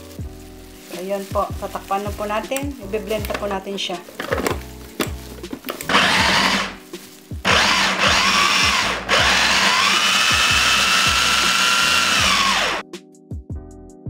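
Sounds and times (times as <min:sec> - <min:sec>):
food chopper motor whining: 0:05.9 - 0:06.8, 0:07.5 - 0:12.8.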